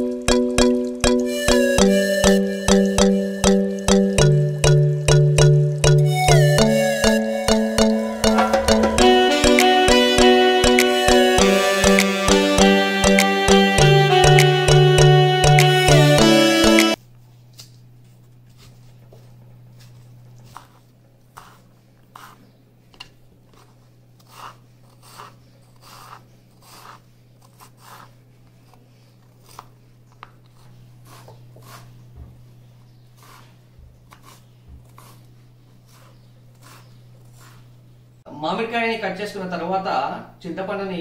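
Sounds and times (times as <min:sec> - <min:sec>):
low hum: 0:03.0 - 0:10.4.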